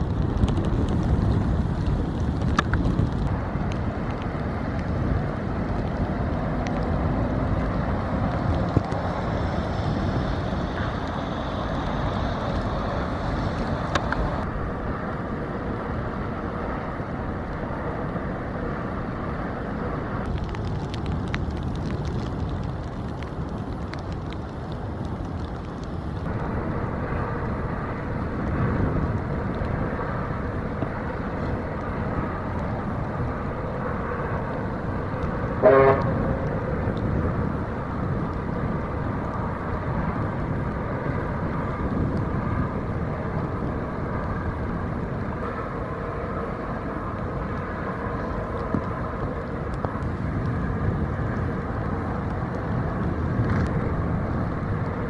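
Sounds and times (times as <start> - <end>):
steady outdoor rumble: 0.0 - 55.0
short horn toot: 35.6 - 36.1.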